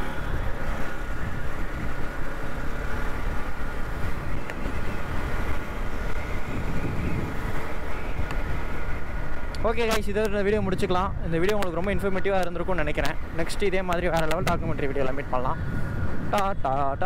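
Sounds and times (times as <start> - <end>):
motorcycle engine riding: 0.0 - 17.0.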